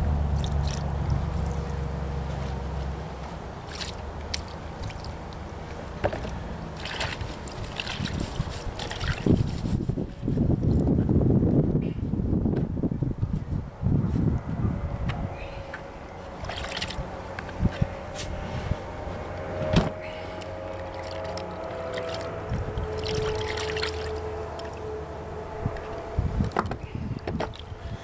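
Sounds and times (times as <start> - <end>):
motor droning: 14.2 - 28.0.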